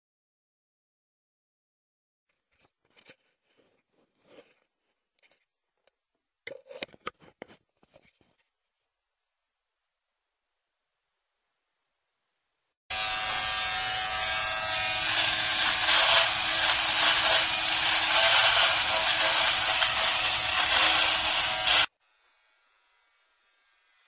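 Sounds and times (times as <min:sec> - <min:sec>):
electric shaver buzzing: 0:12.9 - 0:24.0.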